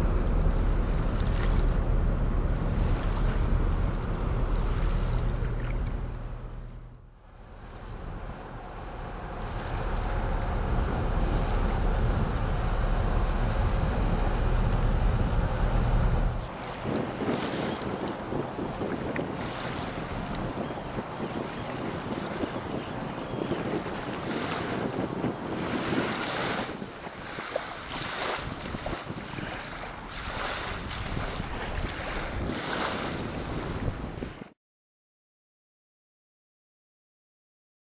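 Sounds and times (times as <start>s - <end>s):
ship diesel engines rumbling: 0.0s - 16.7s
wind buffeting microphone: 0.0s - 34.6s
small waves washing on shore: 0.9s - 6.3s, 7.3s - 15.6s, 16.3s - 34.6s.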